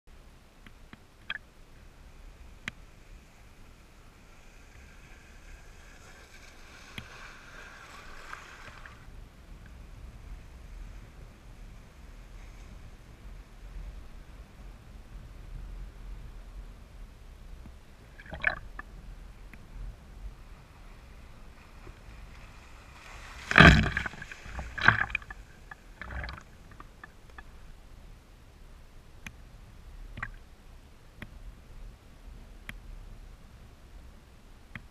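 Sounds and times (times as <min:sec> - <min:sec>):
low rumble of water: 0:00.1 - 0:34.9
water splashing: 0:05.8 - 0:09.0, 0:18.0 - 0:19.0, 0:20.8 - 0:27.6, 0:30.1 - 0:30.4
water drips: 0:18.1 - 0:18.9, 0:23.5 - 0:27.5, 0:30.1 - 0:30.4.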